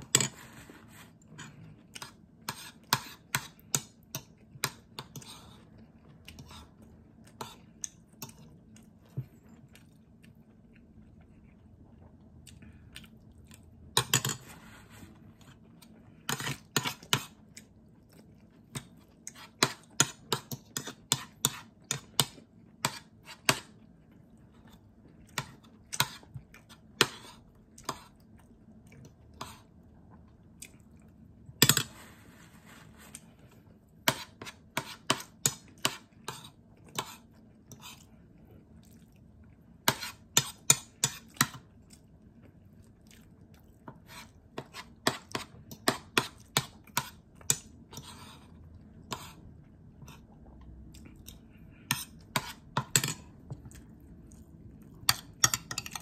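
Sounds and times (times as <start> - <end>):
person chewing: 4.3 - 13.9, 15.2 - 31.4, 34.5 - 56.0
rustling noise: 31.9 - 33.4
cutlery clicking on plate: 55.1 - 56.0.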